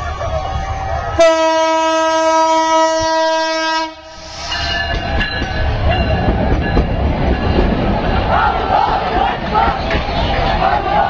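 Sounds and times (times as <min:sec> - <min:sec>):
train rumbling and clattering past: 0:00.0 - 0:11.0
locomotive horn blast: 0:01.2 - 0:04.3.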